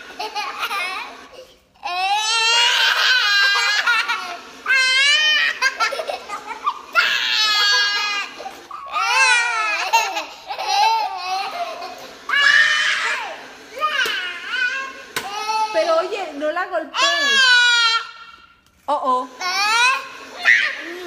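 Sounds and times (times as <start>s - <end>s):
young children laughing: 0.0s - 1.6s, 2.3s - 13.9s.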